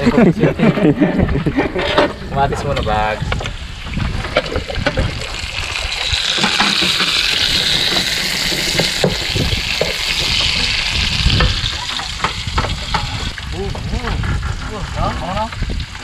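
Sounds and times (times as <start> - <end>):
food sizzling in a frying pan: 4.7 - 14.0.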